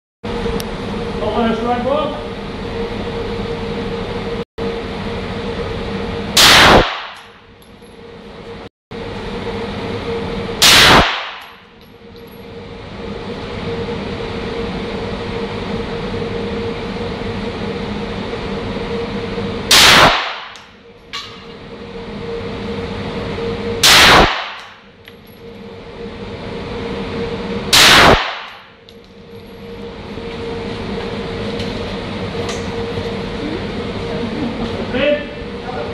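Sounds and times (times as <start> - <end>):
steady hum: 0.2 - 35.9
pistol shots echoing indoors: 6.4 - 7.3, 10.6 - 11.6, 19.7 - 20.6, 23.8 - 24.7, 27.8 - 28.6.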